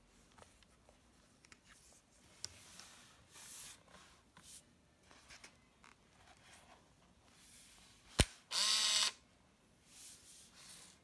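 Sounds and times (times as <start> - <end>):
camera motor whirring: 8.5 - 9.2.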